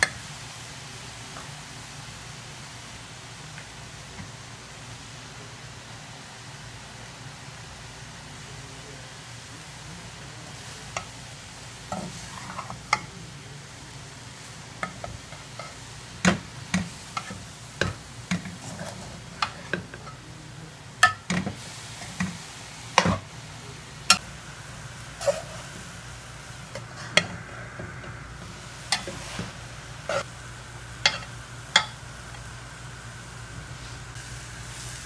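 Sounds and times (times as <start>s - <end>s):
vegetables sizzling: 0.0s - 35.0s
metal spoon scraping a pan: 11.9s - 13.2s, 16.7s - 20.2s, 25.2s - 25.8s, 28.9s - 30.3s, 31.0s - 32.0s.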